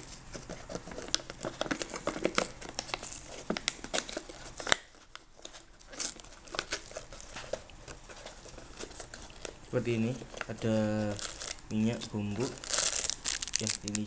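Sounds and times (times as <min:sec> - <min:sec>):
plastic lid crinkling and tearing: 0:00.3 - 0:11.7, 0:12.3 - 0:14.0.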